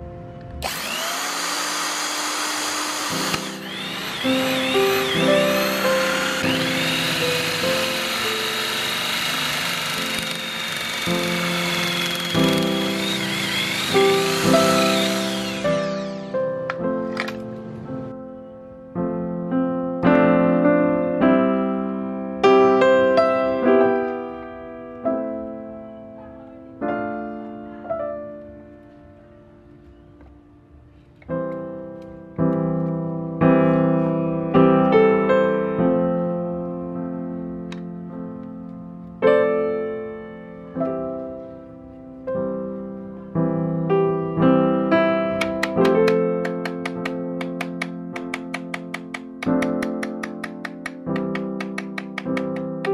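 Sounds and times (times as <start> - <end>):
slow piano music: 0.0 - 52.9.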